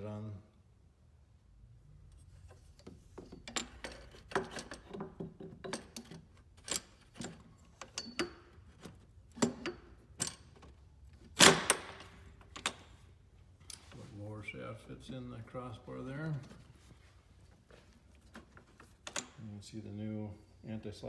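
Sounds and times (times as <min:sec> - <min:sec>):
light clicks and knocks of parts: 0:02.1 - 0:14.1, 0:17.6 - 0:19.5.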